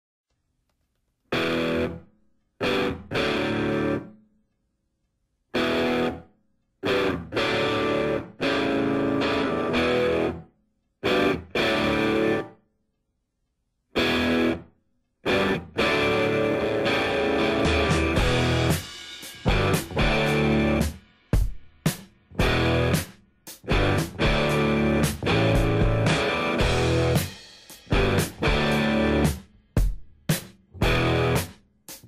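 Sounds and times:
distorted electric guitar chords: 1.3 - 2.0, 2.6 - 4.2, 5.6 - 12.6, 14.0 - 21.0, 22.3 - 29.4, 30.8 - 31.5.

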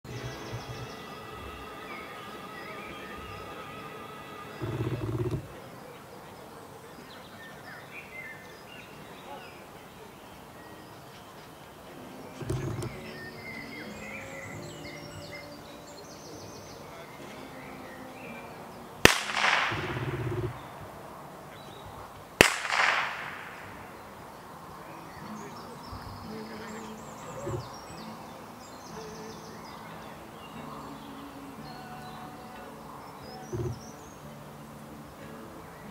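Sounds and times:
blank gunshots with echo: 19.0 - 20.8, 22.4 - 24.1.

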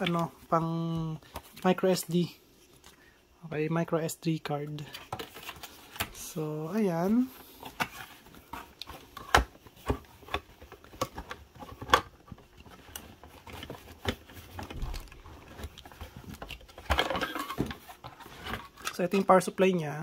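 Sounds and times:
cardboard rustling: 4.7 - 19.5.

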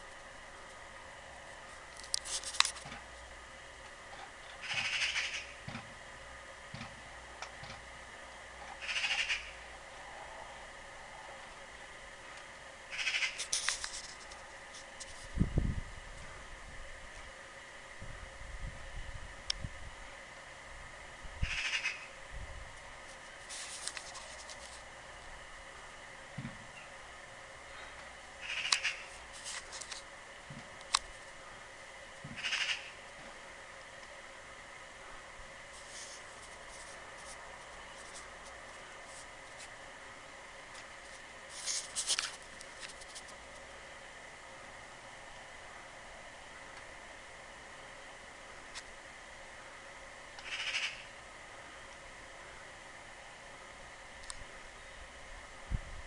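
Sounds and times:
bird harsh calls: 4.6 - 5.6, 8.8 - 9.6, 12.9 - 13.5, 21.4 - 22.2, 28.4 - 29.2, 32.4 - 33.0, 50.4 - 51.1.

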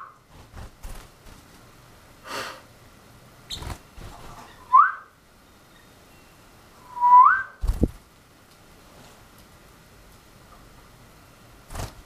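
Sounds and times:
man whistling rising notes: 6.8 - 7.6.

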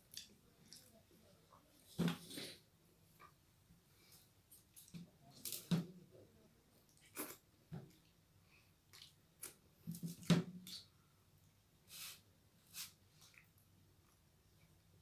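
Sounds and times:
short breaths or sniffs: 11.9 - 13.0.

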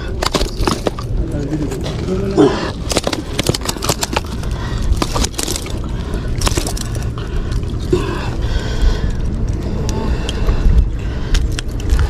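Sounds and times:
low rumble: 0.0 - 12.0
fish slapping and scraping on concrete: 2.8 - 7.6.

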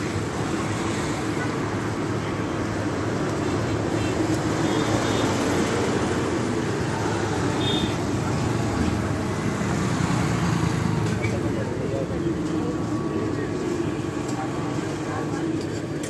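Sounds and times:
faint voices: 0.0 - 16.0
low traffic rumble: 0.0 - 16.0.

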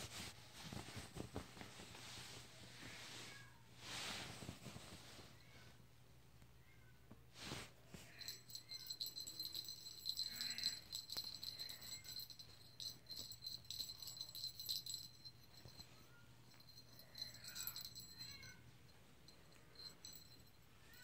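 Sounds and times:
small bell jingling: 8.1 - 21.0.

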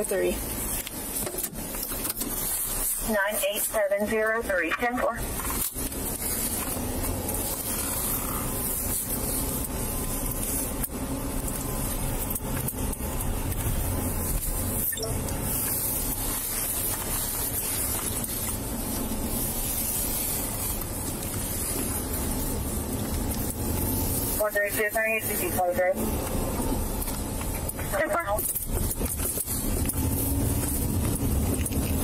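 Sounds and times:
road and engine noise in car: 0.0 - 32.0.

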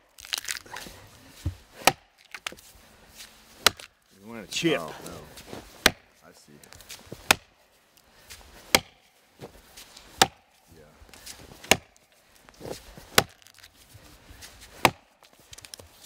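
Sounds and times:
axe chopping into log: 1.4 - 2.6, 3.6 - 3.9, 5.7 - 6.1, 7.1 - 7.5, 8.6 - 9.0, 10.1 - 10.5, 11.5 - 12.0, 13.1 - 13.6, 14.8 - 15.1.

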